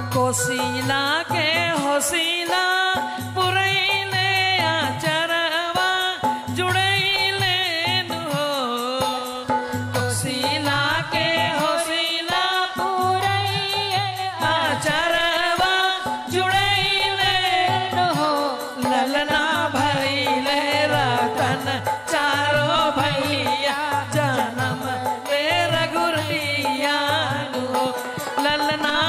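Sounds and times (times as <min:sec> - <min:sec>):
instrumental folk accompaniment: 0:00.0 - 0:29.0
woman singing folk song: 0:00.0 - 0:29.0.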